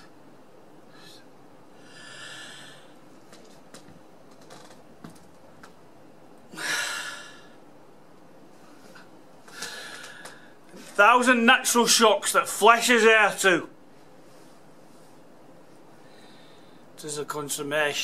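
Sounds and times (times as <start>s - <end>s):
man breathing: 0.8s - 3.0s, 6.5s - 7.6s, 8.8s - 10.8s, 15.9s - 17.0s.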